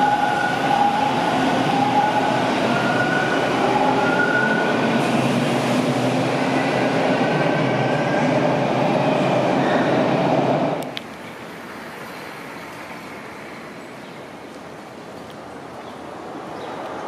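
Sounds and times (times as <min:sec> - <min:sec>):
subway train whine: 0:00.0 - 0:11.0.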